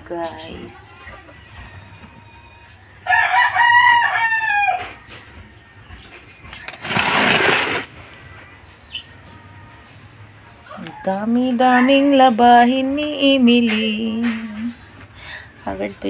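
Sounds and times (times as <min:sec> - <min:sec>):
rooster crowing: 0:03.0 - 0:05.0.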